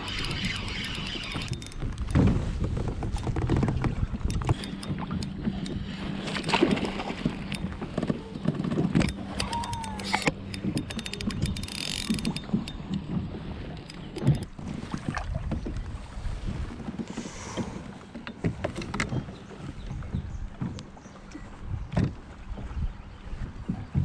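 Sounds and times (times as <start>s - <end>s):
fishing reel clicking: 0.0s - 2.1s, 9.0s - 12.8s
water sloshing: 0.0s - 24.0s
wind on microphone: 0.0s - 24.0s
knocks on kayak: 2.1s - 4.0s.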